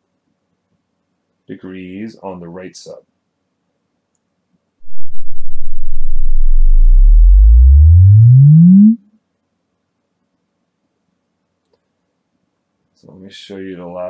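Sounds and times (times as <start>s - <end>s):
rising sine sweep tone: 4.8s - 9.0s.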